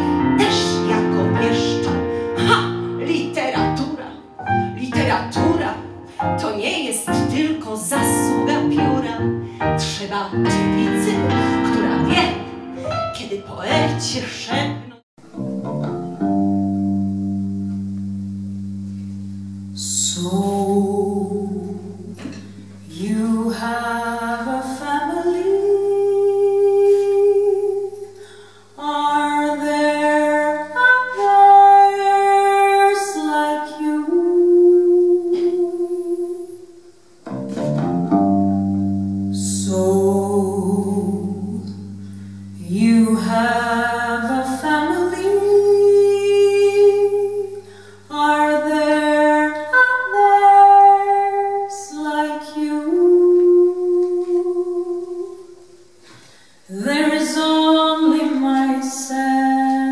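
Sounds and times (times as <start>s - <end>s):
woman singing long notes: 0.0s - 15.0s, 19.7s - 36.8s, 39.2s - 55.7s, 56.7s - 59.9s
low electric bass note: 14.8s - 23.0s.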